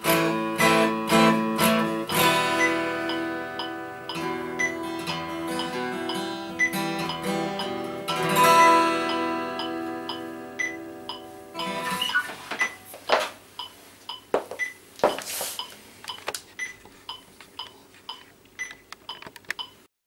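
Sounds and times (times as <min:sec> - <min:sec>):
acoustic guitar chord ringing: 0:00.0 - 0:12.2.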